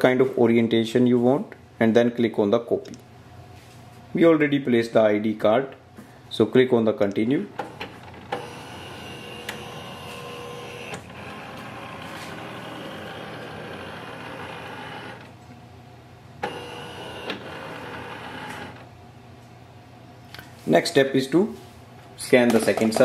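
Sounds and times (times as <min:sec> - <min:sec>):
scanner humming and whining: 0:07.4 - 0:19.3.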